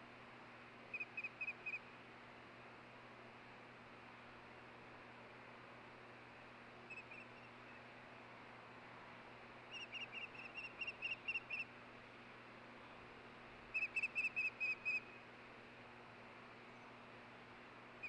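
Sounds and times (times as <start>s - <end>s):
bird high whistled chirps: 0.9s - 1.8s, 9.7s - 11.6s, 13.7s - 15.0s.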